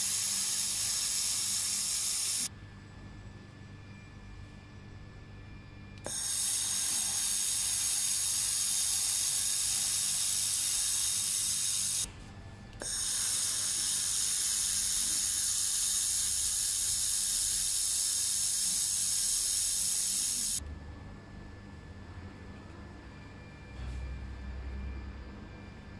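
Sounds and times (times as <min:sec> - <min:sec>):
laser welding gun hissing: 0:00.0 - 0:02.5, 0:06.0 - 0:12.1, 0:12.8 - 0:20.6.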